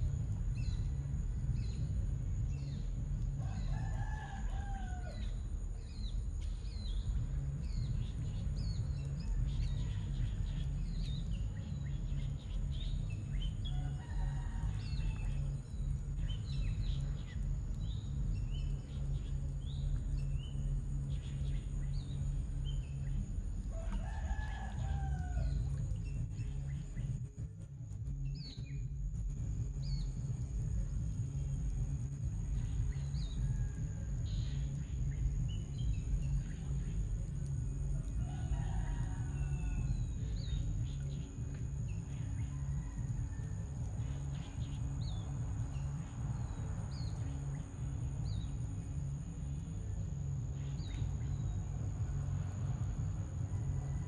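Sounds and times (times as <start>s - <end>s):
steady low rumble: 0.0s - 54.0s
rooster crowing: 3.4s - 5.4s, 13.6s - 15.4s, 23.7s - 25.8s, 37.9s - 40.5s, 42.2s - 43.8s, 53.4s - 54.0s.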